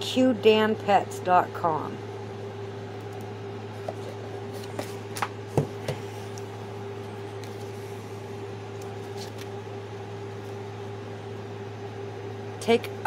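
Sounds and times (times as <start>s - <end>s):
steady low hum: 0.0s - 13.0s
cardboard and paper rustling: 8.9s - 9.5s.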